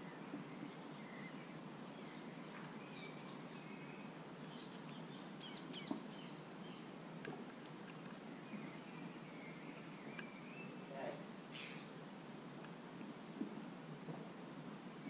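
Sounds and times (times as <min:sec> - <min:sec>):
outdoor hiss: 0:00.0 - 0:15.0
birds chirping and whistling: 0:02.0 - 0:06.9, 0:08.3 - 0:11.9.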